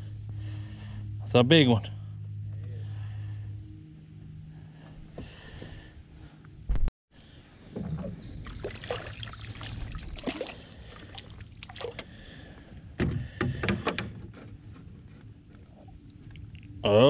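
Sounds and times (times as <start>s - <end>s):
water splashing beside boat: 7.6s - 13.4s.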